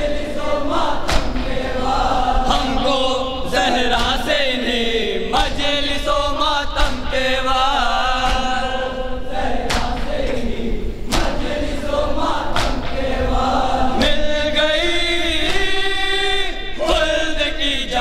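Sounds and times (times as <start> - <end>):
men chanting a lament: 0.0 - 18.0
chest-beating slaps: 0.7 - 2.7, 3.9 - 4.3, 6.8 - 7.3, 9.6 - 11.6, 12.5 - 13.2.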